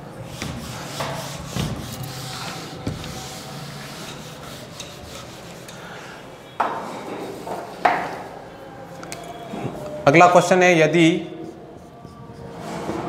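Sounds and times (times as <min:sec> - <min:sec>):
duster wiping whiteboard: 0:00.3 - 0:05.8.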